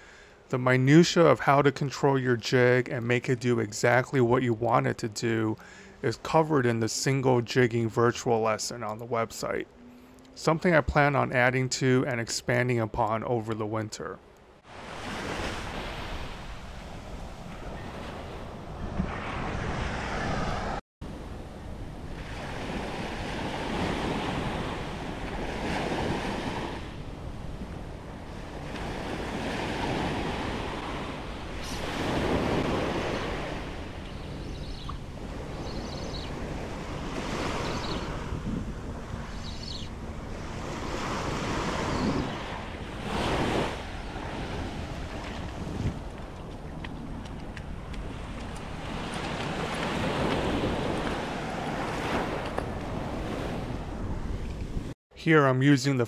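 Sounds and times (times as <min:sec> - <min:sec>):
small waves breaking on beach: 0:14.6 - 0:21.3, 0:21.9 - 0:54.4
wind rumbling on microphone: 0:14.7 - 0:55.0.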